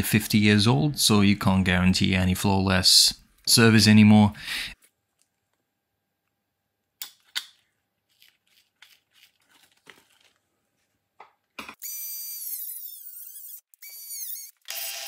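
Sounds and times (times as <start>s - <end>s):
small power tool motor whining: 11.8s - 15.0s.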